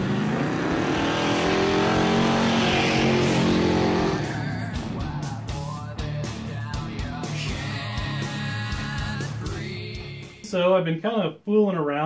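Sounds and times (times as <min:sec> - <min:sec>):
car engine revving hard: 0:00.0 - 0:05.0
tires squealing: 0:00.2 - 0:04.8.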